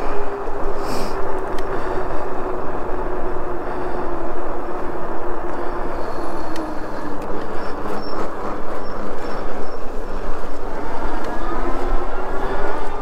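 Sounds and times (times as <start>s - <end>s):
electric bike rushing noise: 0.0s - 13.0s
faint hub motor whine: 0.0s - 13.0s.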